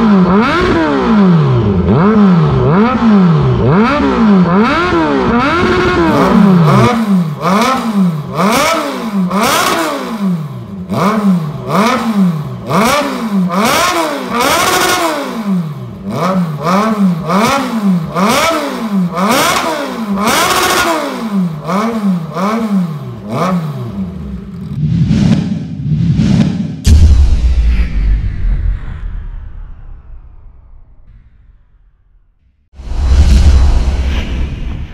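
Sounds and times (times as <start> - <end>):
motorcycle engine revving: 0.0 - 26.9.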